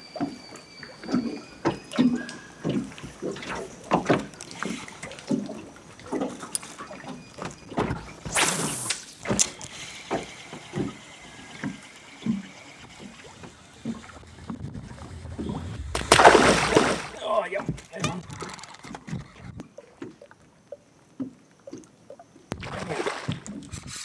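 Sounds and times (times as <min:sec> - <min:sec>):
loud rush of noise: 0:14.0 - 0:17.6.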